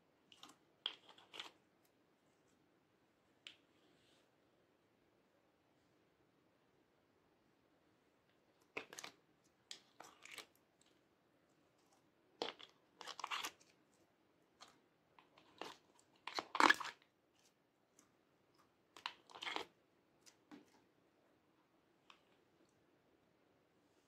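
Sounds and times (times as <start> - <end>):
sticky slime squelches: 0.2 - 1.9, 8.5 - 21.0.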